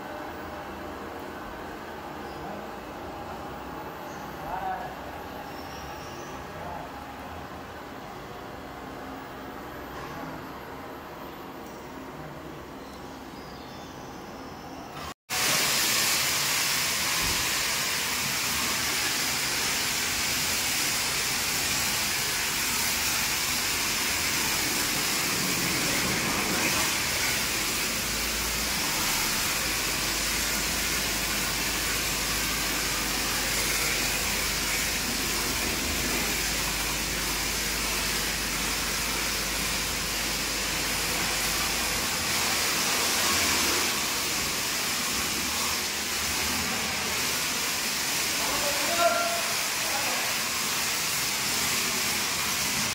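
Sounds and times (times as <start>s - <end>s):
foam spray hissing: 15.3s - 52.9s.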